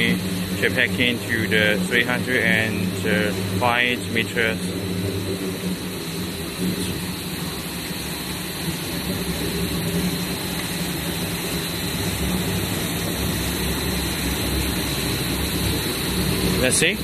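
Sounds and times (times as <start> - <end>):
machine hum with high whine: 0.0 - 17.0.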